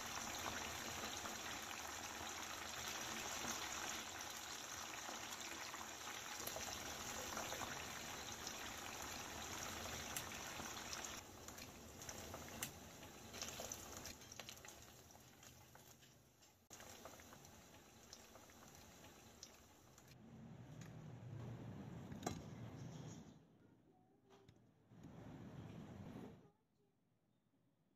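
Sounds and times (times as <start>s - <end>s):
oil sizzling and bubbling: 0.0s - 20.2s.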